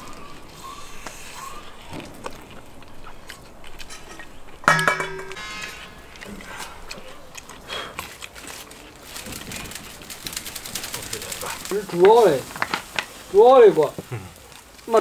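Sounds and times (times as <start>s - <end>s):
people chewing food: 0.0s - 15.0s
sudden ringing note: 4.7s - 6.0s.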